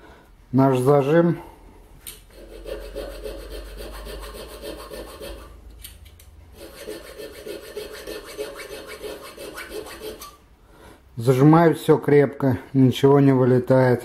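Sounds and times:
needle file rasping on metal: 0:02.3 - 0:05.6, 0:06.5 - 0:10.4.

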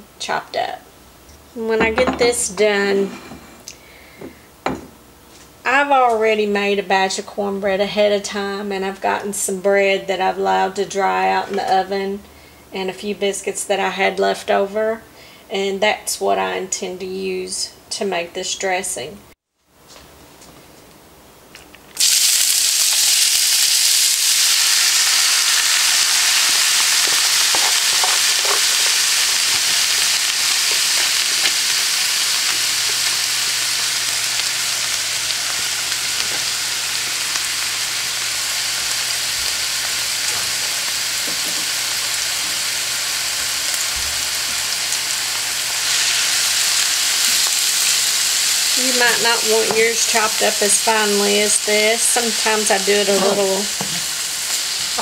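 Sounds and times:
vegetables sizzling in oil: 0:21.9 - 0:55.0.

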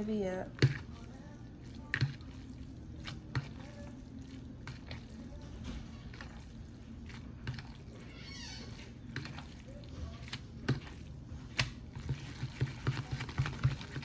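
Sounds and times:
low steady hum: 0:00.0 - 0:14.0
fork stirring wet noodles: 0:00.5 - 0:14.0.

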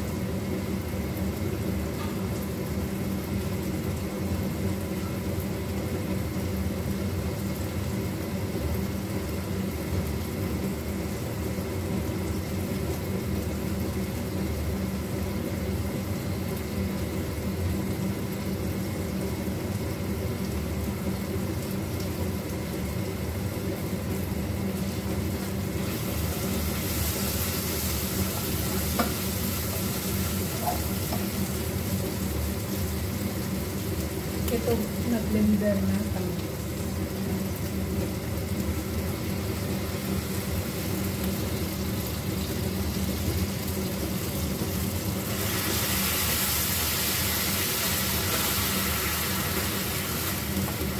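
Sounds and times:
food sizzling in a pan: 0:00.0 - 0:50.9
steady low hum: 0:00.0 - 0:50.9.

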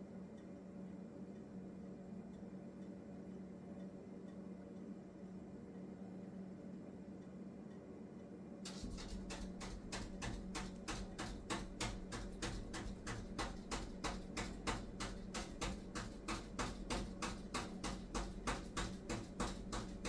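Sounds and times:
gas oven low hum: 0:00.0 - 0:20.0
rapid clicking: 0:08.7 - 0:20.0.

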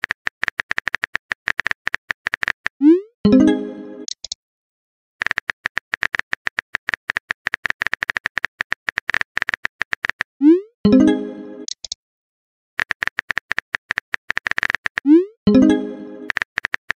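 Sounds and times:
keyboard typing clicks: 0:04.0 - 0:04.4, 0:11.6 - 0:12.0, 0:12.8 - 0:17.0.

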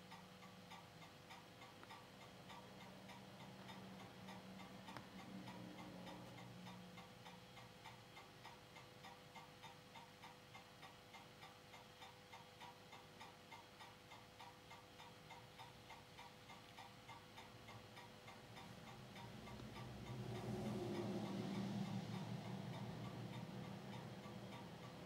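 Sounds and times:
projector ticking: 0:00.0 - 0:25.0
projector hum: 0:15.2 - 0:25.0.

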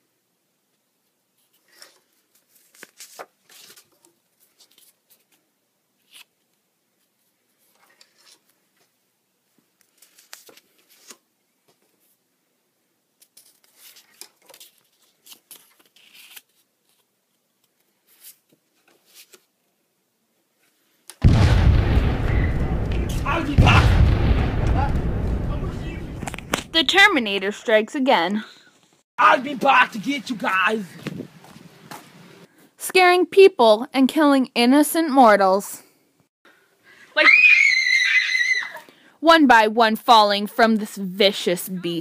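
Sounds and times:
paper cards rustling: 0:01.4 - 0:08.9, 0:09.7 - 0:12.2, 0:13.2 - 0:19.5.

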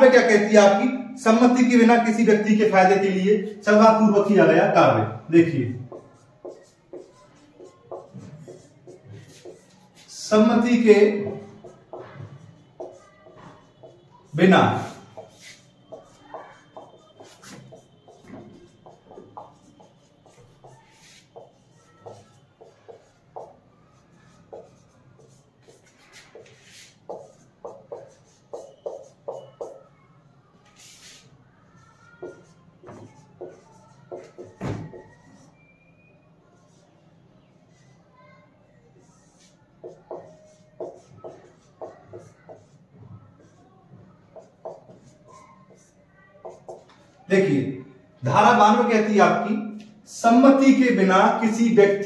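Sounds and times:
marker squeaking on whiteboard: 0:00.0 - 0:52.0.

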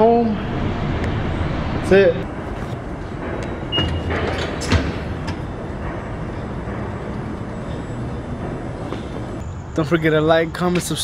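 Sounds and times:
steady rumbling: 0:00.0 - 0:09.5.

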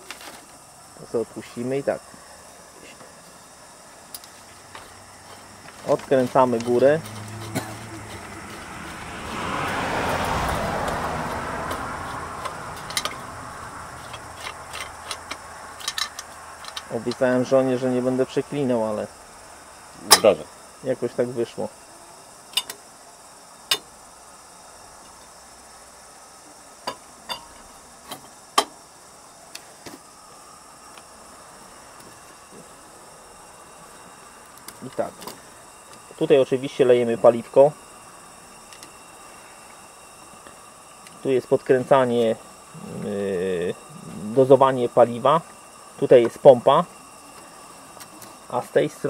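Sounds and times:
vehicle passing by: 0:06.8 - 0:14.2
glass lantern parts clinking: 0:12.4 - 0:13.2, 0:14.0 - 0:17.2, 0:26.8 - 0:27.6.

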